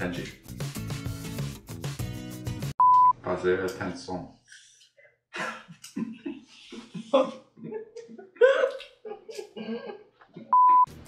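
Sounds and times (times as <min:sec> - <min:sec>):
electronic beep: 0:02.8 - 0:03.1
man laughing: 0:05.3 - 0:10.5.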